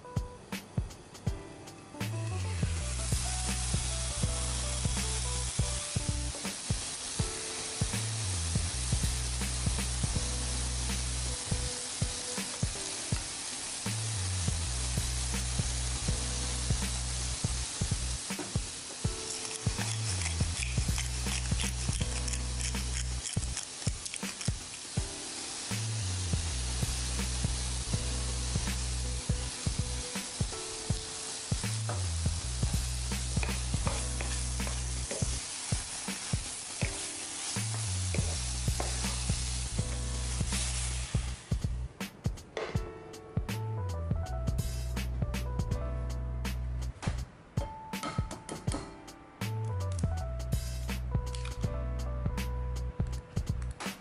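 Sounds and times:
background music with low notes: 0:00.0 - 0:54.0
mushrooms sizzling in a frying pan: 0:02.3 - 0:41.9
small scattered pops: 0:19.3 - 0:24.9.

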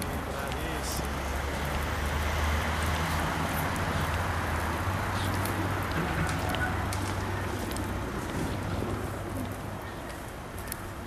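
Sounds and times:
faint footsteps on paved path: 0:00.0 - 0:11.0.

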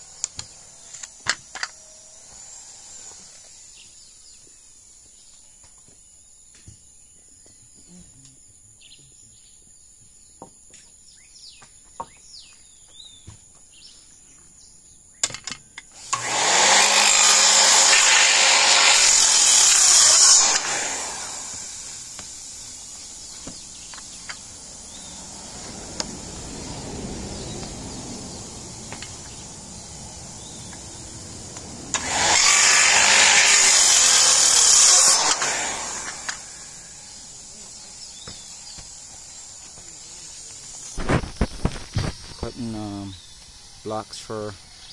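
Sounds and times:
circular saw cutting board: 0:00.0 - 0:05.2, 0:16.0 - 0:42.8.

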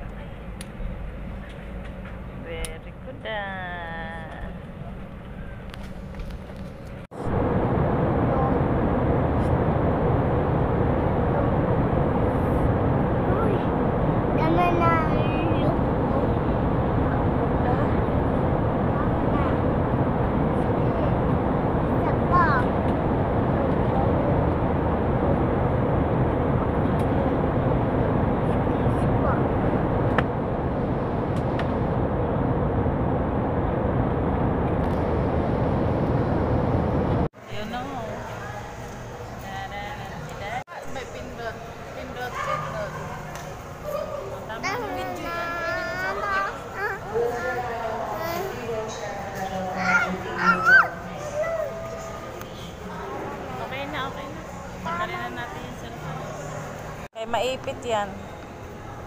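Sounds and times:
airliner cabin engine rush: 0:00.0 - 0:59.0
faint steady hum: 0:00.0 - 0:59.0.

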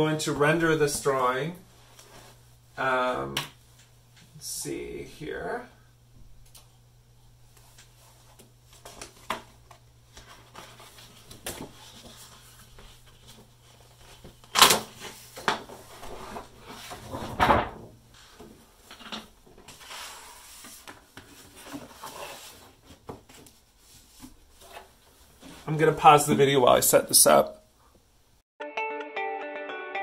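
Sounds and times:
paper rustling: 0:07.6 - 0:17.1, 0:19.7 - 0:25.7.

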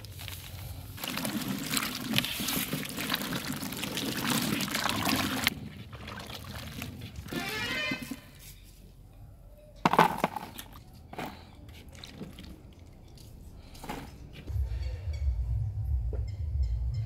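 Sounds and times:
hands sloshing in water: 0:01.0 - 0:07.3
water splashing and dripping: 0:01.0 - 0:07.4, 0:11.8 - 0:13.3.

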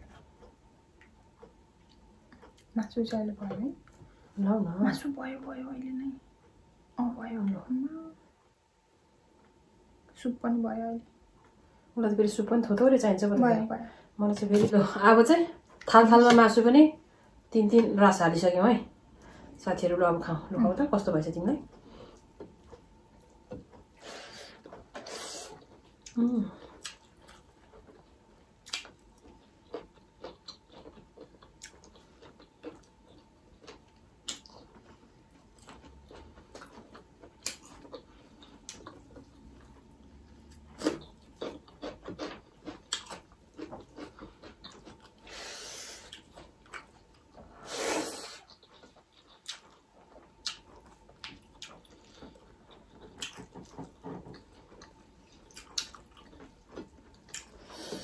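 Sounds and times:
chewing and mouth smacks: 0:00.0 - 0:02.8, 0:24.6 - 0:45.4, 0:46.0 - 0:47.4, 0:48.3 - 0:57.7.

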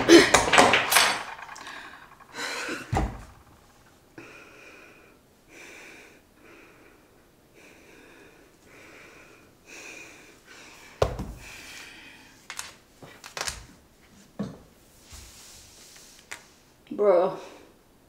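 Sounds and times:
woman breathing heavily: 0:01.6 - 0:03.5, 0:04.2 - 0:12.4
loud thump: 0:02.9 - 0:03.3.

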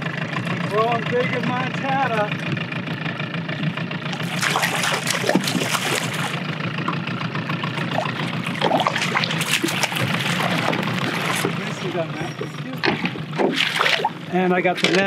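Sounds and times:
boat motor humming: 0:00.0 - 0:15.0
fish splashing in water: 0:04.0 - 0:06.5, 0:07.6 - 0:12.0, 0:13.3 - 0:14.3.

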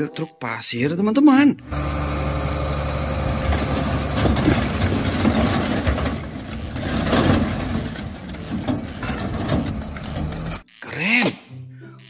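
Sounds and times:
dump truck engine running: 0:01.6 - 0:10.6
stone blocks tumbling and clattering: 0:03.4 - 0:10.0.

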